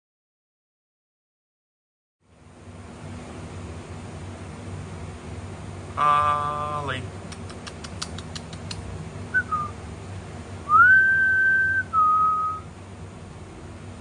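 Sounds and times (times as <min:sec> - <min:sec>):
light clicks: 0:07.3 - 0:08.9
person whistling: 0:09.4 - 0:09.8, 0:10.7 - 0:12.7.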